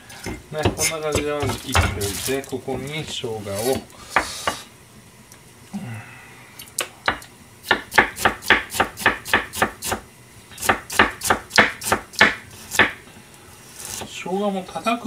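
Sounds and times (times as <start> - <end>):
knife chopping on cutting board: 0.3 - 2.2, 7.1 - 10.0, 10.6 - 13.0.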